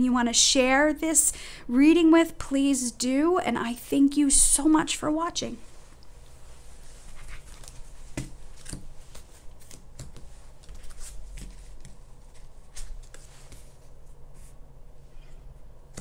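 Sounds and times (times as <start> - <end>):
cards being shuffled: 7.0 - 14.5.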